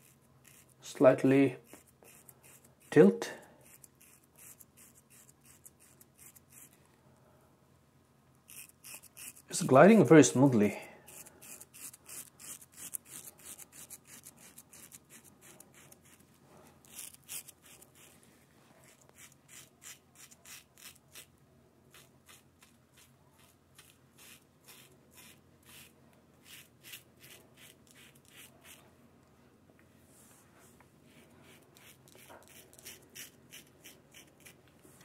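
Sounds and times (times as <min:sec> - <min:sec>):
razor scraping stubble: 0:00.0 - 0:06.8, 0:08.5 - 0:10.0, 0:11.1 - 0:18.2, 0:18.8 - 0:21.3, 0:21.9 - 0:28.8, 0:31.1 - 0:34.6.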